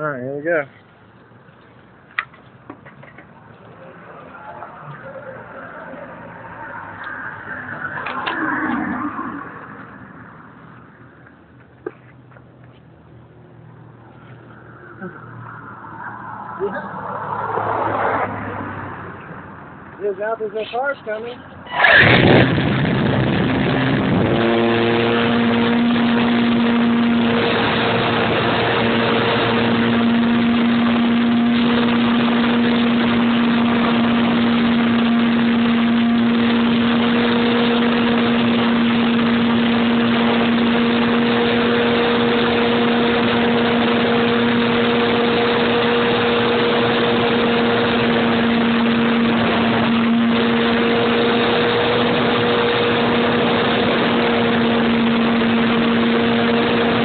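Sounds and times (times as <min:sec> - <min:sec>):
model plane motor drone: 0:21.7 - 0:57.0.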